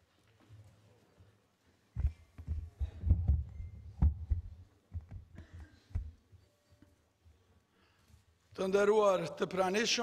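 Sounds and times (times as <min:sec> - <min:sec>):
papers and hands thumping on lectern: 0:02.0 - 0:06.1.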